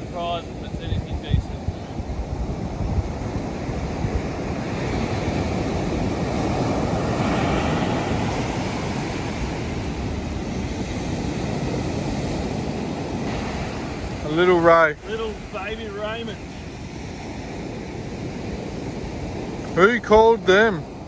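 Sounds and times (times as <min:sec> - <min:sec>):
ocean surf breaking: 0:00.0 - 0:21.0
wind rumbling on microphone: 0:00.0 - 0:21.0.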